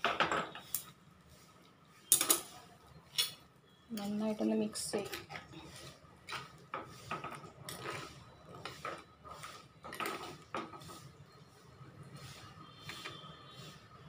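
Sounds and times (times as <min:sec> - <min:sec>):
ladle scraping and knocking pot: 0:04.8 - 0:11.1.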